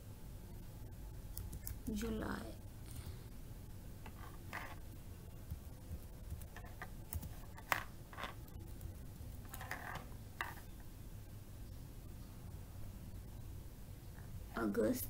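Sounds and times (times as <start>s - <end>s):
low steady hum: 0.0s - 15.0s
computer keyboard keystrokes: 1.3s - 1.8s, 5.5s - 7.5s.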